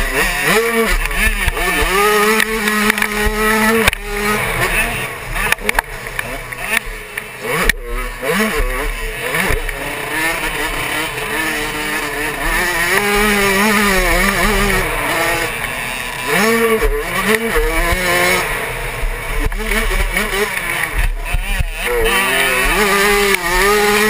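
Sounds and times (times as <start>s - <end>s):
motocross engine revving: 0.0s - 24.0s.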